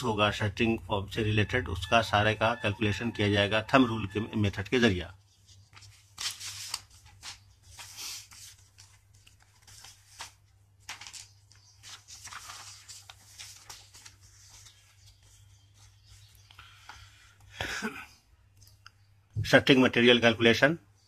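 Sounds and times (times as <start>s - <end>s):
paper sheets rustling: 5.4s - 17.1s.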